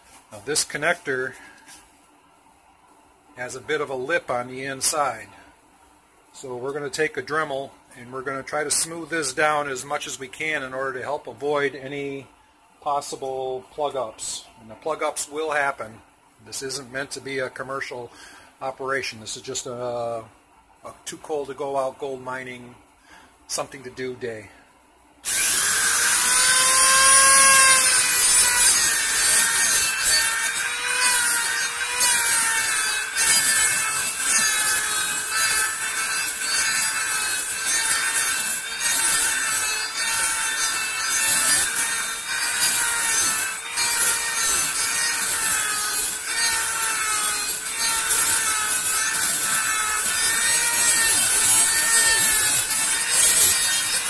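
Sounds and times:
rotary tool whining: 0:25.2 - 0:54.0
bit grinding plastic pipe: 0:25.3 - 0:54.0.

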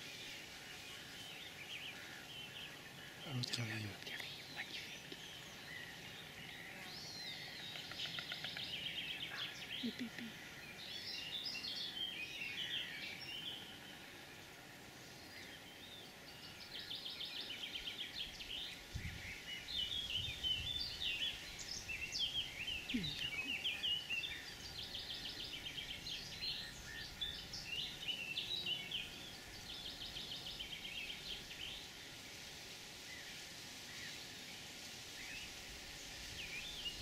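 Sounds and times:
faint background hiss: 0:00.0 - 0:37.0
songbirds singing: 0:00.0 - 0:37.0.

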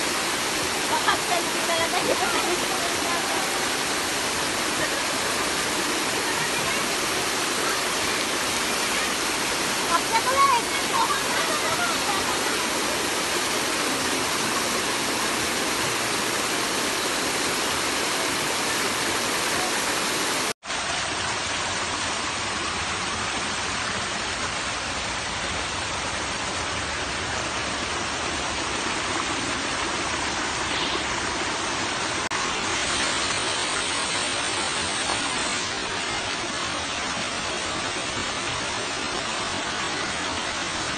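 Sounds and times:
water rushing down waterfall: 0:00.0 - 0:40.9.

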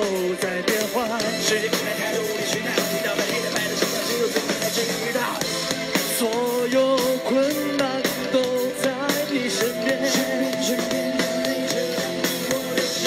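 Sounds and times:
man singing: 0:00.0 - 0:13.0
pop-rock band playing: 0:00.0 - 0:13.0.

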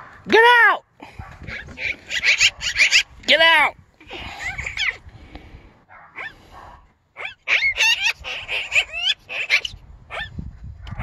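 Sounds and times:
magpie calling: 0:01.5 - 0:03.1, 0:07.2 - 0:09.8.

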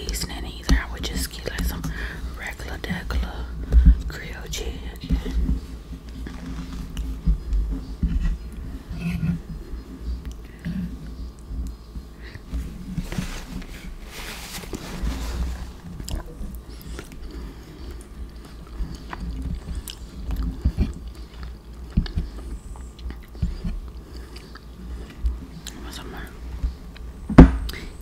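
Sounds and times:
close chewing with wet mouth clicks: 0:16.0 - 0:25.8.

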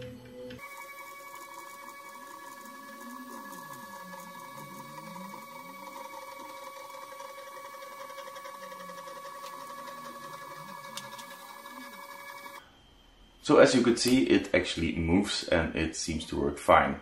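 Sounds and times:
low wavering hum: 0:00.0 - 0:12.6
stepper motors whining: 0:00.0 - 0:12.6.

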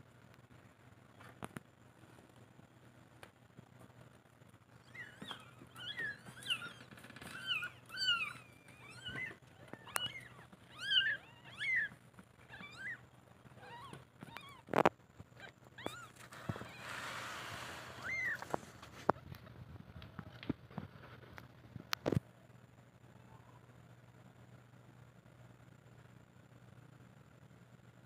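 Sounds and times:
kittens mewing: 0:04.8 - 0:19.2.

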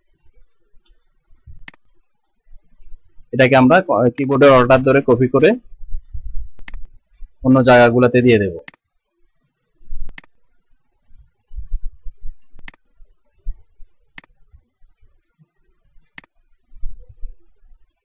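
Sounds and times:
soft low thumps: 0:00.4 - 0:01.7, 0:04.5 - 0:07.5, 0:09.8 - 0:10.3, 0:11.1 - 0:14.6, 0:16.7 - 0:17.7
computer mouse clicks: 0:01.6 - 0:02.0, 0:06.6 - 0:06.9, 0:08.6 - 0:08.8, 0:10.1 - 0:10.4, 0:12.4 - 0:12.9, 0:14.2 - 0:14.4, 0:16.0 - 0:16.4.

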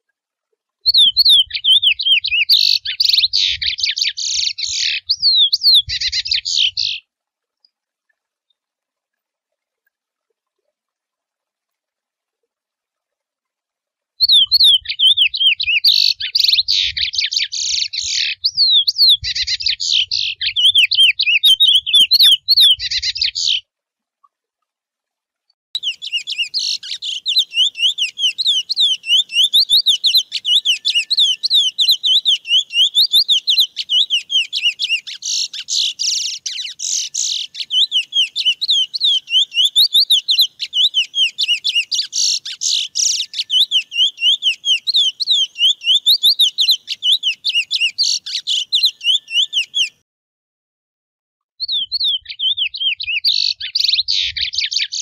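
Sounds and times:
finch singing warbling song: 0:00.8 - 0:07.0, 0:14.2 - 0:23.6, 0:25.8 - 0:50.0, 0:51.6 - 0:55.0.

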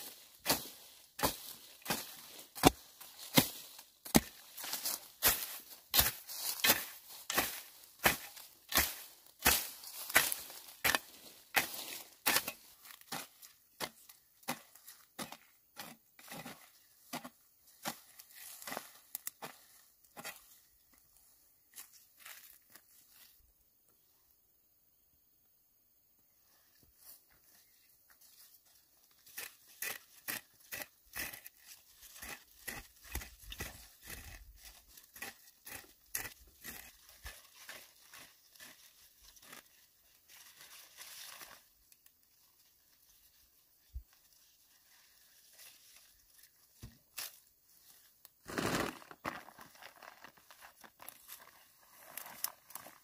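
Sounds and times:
hoe chopping and scraping soil: 0:00.0 - 0:20.6, 0:29.0 - 0:41.7, 0:48.4 - 0:50.0.

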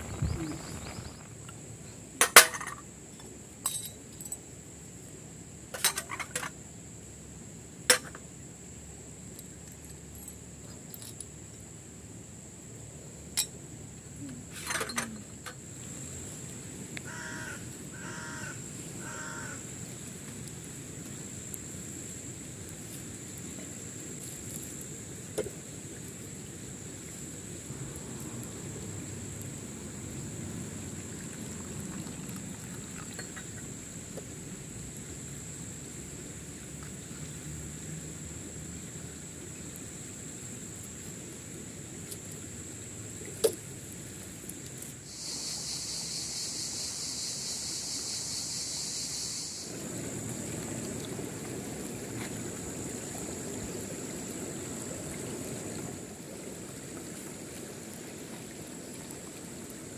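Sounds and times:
crow cawing: 0:17.0 - 0:19.6.

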